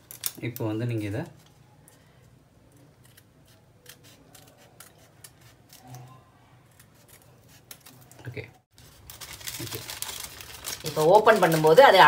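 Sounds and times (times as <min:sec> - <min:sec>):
scissors snipping paper: 0:02.8 - 0:08.2.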